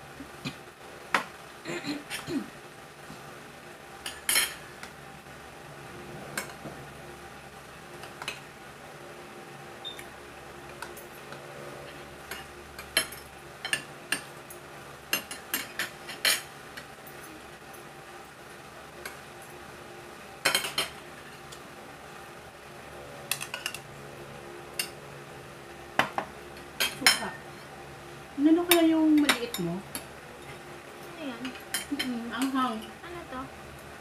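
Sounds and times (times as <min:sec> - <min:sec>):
cutlery clinking on a plate: 0:04.0 - 0:04.6, 0:20.4 - 0:21.5, 0:23.3 - 0:23.8.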